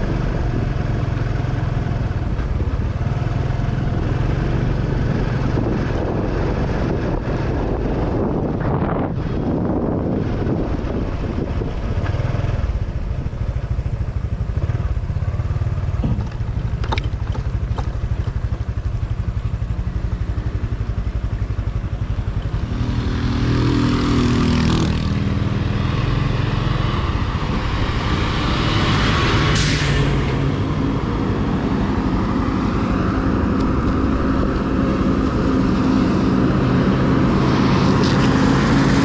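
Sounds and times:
motorcycle engine running: 0.0s - 29.5s.

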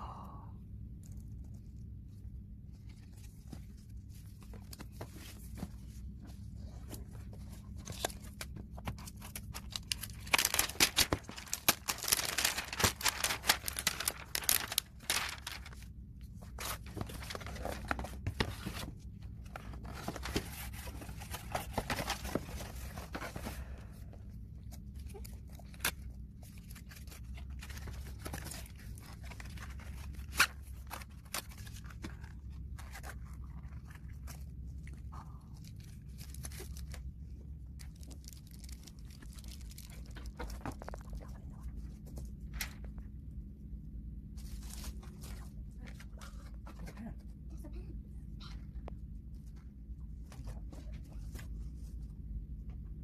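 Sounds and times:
plastic and cardboard packaging crinkling: 2.7s - 23.8s, 24.6s - 41.8s.

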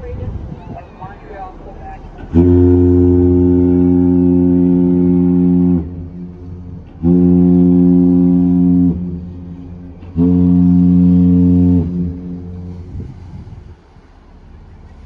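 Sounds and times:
low ship's horn blasts: 0.0s - 15.0s.

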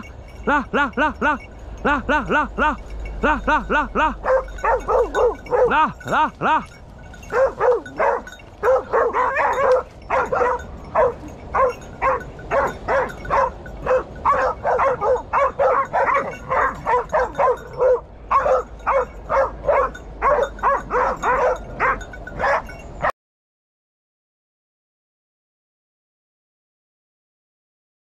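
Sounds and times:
dog barking rapidly: 4.2s - 6.0s, 7.2s - 22.8s.

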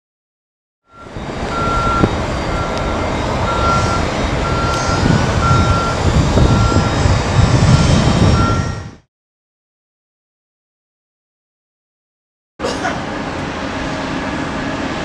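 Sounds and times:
reversing alarm beeping: 0.8s - 9.1s
low rumble of machinery: 0.9s - 9.0s, 12.6s - 15.0s.

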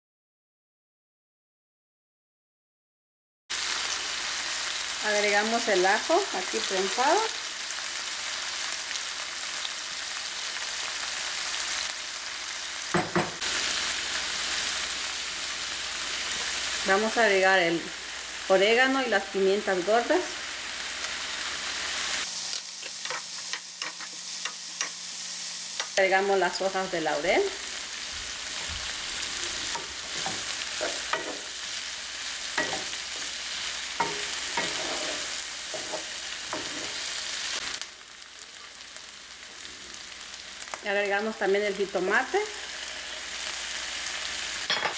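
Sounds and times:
vegetables sizzling in oil: 3.5s - 44.9s
knocks against pan: 13.0s - 13.4s
wooden spoon scraping a pan: 28.5s - 31.5s, 34.0s - 37.2s.

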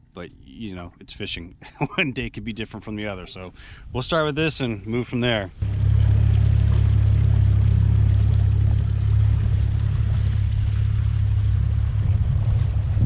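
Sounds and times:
outboard motor rumbling: 5.4s - 13.0s.

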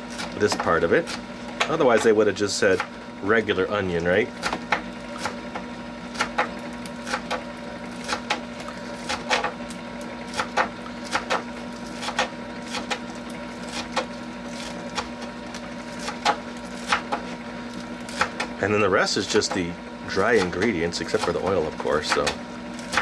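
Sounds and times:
popcorn popper humming: 0.0s - 23.0s
knife chopping on cutting board: 4.4s - 7.4s, 10.3s - 13.0s, 16.0s - 17.4s, 20.2s - 23.0s.

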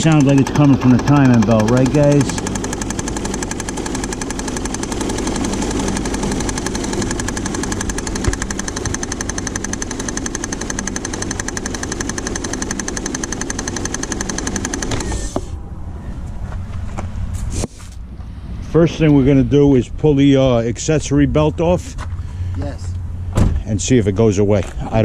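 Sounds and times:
rapid knocking rattle from belt drive: 0.0s - 15.4s
car engine running: 0.0s - 15.6s.

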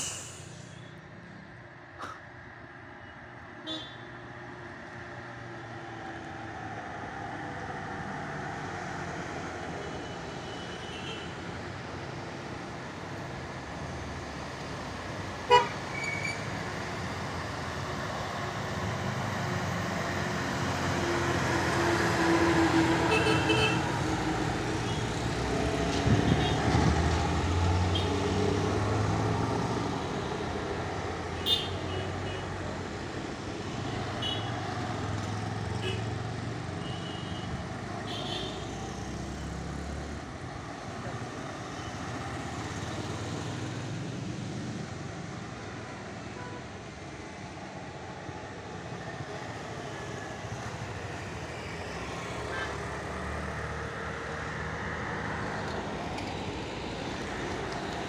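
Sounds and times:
cars and motorcycles: 0.0s - 58.0s
bus engine climbing: 23.8s - 31.4s.

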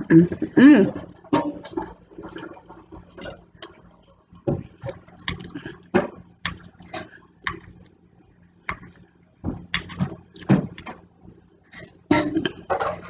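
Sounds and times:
wet chewing: 5.2s - 5.8s, 6.5s - 10.9s.

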